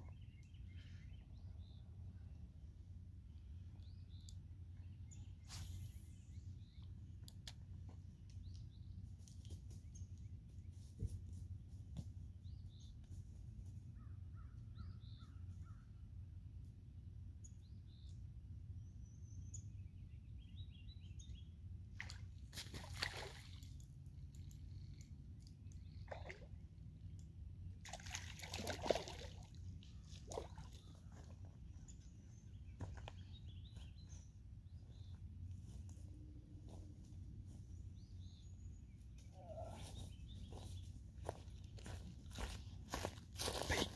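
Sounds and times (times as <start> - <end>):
distant bird calls: 13.9 - 16.0, 27.8 - 35.8, 37.5 - 43.8.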